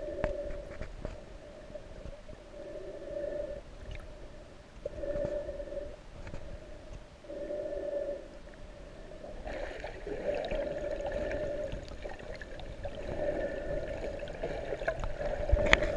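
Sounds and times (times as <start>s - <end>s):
wavering underwater hum: 0.0s - 15.9s
water noise: 8.4s - 15.9s.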